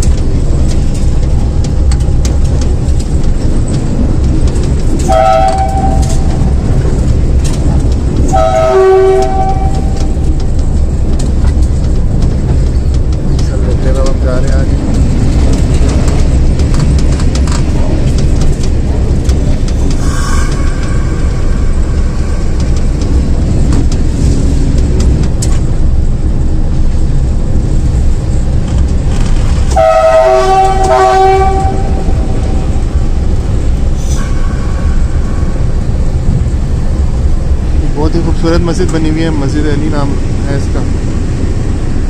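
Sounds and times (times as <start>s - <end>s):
diesel locomotive engine rumble: 0.0s - 42.0s
locomotive horn: 5.1s - 6.5s, 8.3s - 10.2s, 29.7s - 32.8s.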